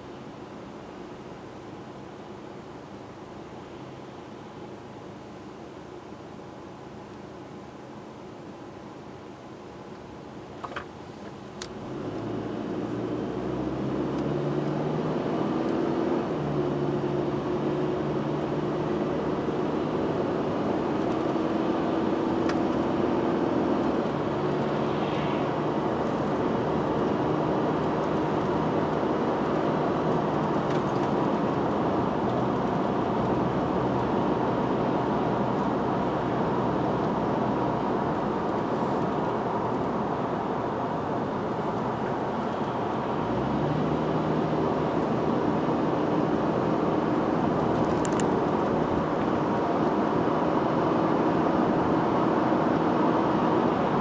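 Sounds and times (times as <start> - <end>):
road and tyre noise: 0.0 - 54.0
car engine accelerating: 11.6 - 54.0.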